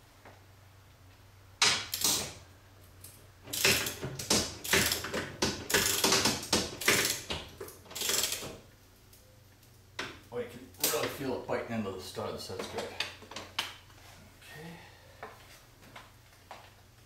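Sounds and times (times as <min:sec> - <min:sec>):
ratchet wrench clicking: 0:03.5 - 0:07.3, 0:07.9 - 0:08.6.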